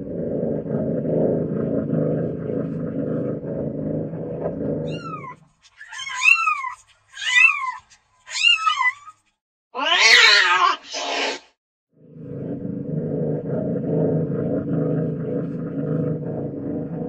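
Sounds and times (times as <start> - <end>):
cat rumbling: 0.0 - 6.6, 12.1 - 17.0
cat meowing: 9.8 - 10.9.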